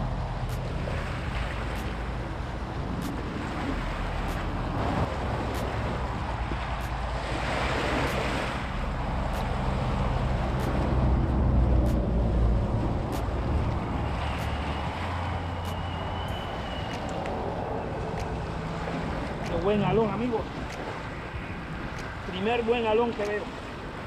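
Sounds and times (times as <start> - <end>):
wind buffeting microphone: 0.0 - 24.0
small waves washing on rocks: 0.5 - 11.0.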